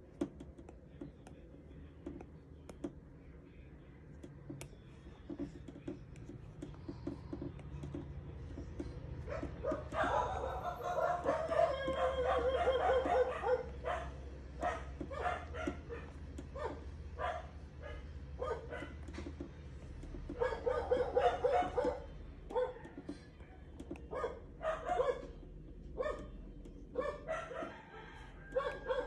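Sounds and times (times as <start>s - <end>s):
stylus tapping on tablet screen: 4.2s - 10.6s.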